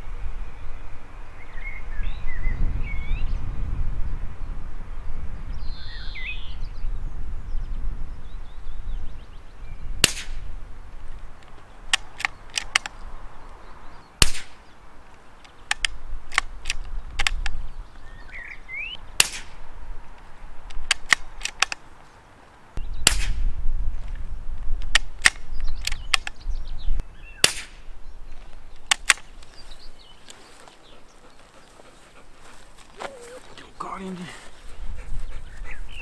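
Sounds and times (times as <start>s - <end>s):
suppressed rifle shots: 10.0s - 10.4s, 14.2s - 14.6s, 19.2s - 19.6s, 23.0s - 23.4s, 27.4s - 27.8s
rifle action clicking: 20.7s - 21.8s.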